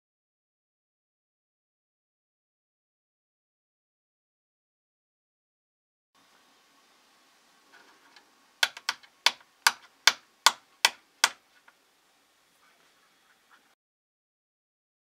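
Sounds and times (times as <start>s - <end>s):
hair stacker tapping on bench: 8.6s - 11.4s.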